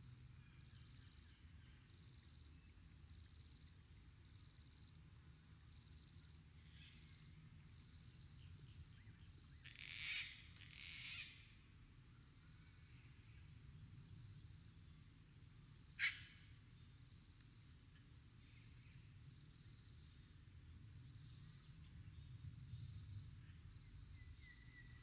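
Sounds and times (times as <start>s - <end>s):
low steady rumble: 16.4s - 25.0s.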